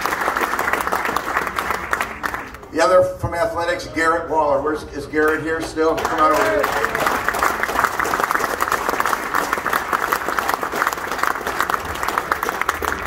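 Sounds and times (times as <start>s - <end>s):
audience applauding: 0.0s - 2.7s, 5.7s - 13.0s.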